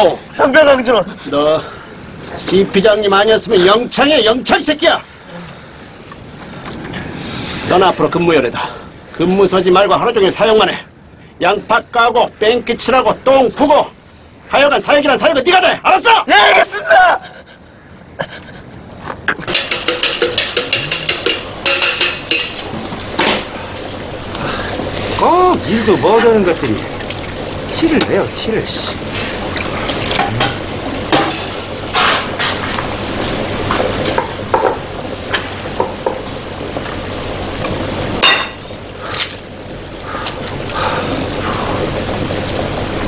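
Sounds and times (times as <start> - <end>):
pots and utensils clinking: 19.4 - 25.2, 28.9 - 37.0, 37.6 - 39.3
frying sizzle: 19.4 - 43.0
sharp clatter: 19.5 - 23.4
utensils clinking on pans: 19.5 - 24.1, 30.2 - 32.8, 38.2 - 38.7.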